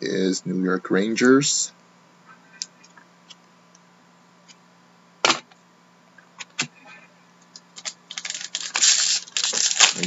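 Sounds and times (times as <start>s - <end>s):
faint steady hum: 0.0s - 10.0s.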